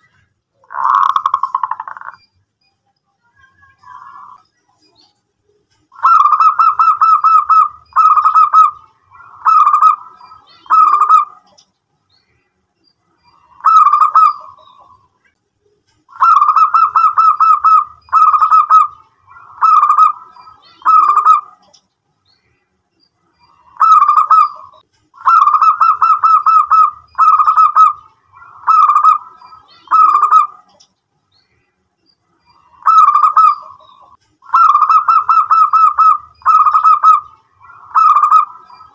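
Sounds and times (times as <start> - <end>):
dove cooing: 0.6 - 2.2, 6.0 - 11.6, 13.4 - 15.0, 16.1 - 21.7, 23.5 - 30.8, 32.6 - 38.9.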